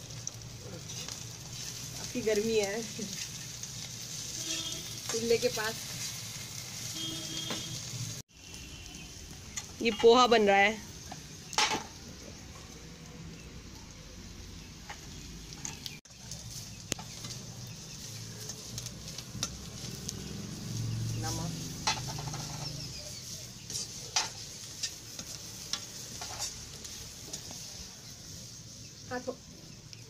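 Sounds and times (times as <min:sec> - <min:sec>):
food sizzling: 0:00.0 - 0:30.0
spatula scraping pan: 0:00.8 - 0:07.9, 0:17.0 - 0:27.9.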